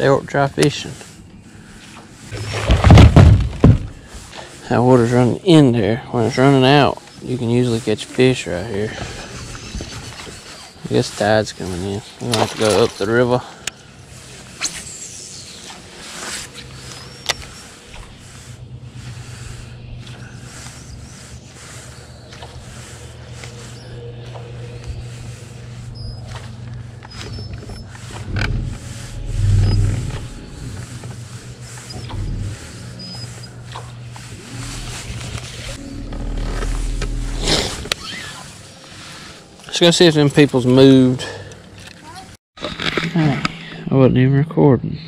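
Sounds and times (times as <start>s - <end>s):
electric motor humming: 17.3s - 38.2s.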